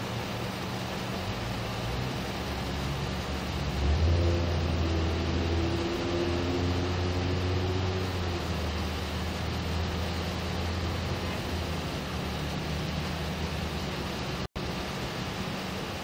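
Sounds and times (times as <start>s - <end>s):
constant hiss: 0.0s - 16.0s
vehicle engine rumble: 0.0s - 16.0s.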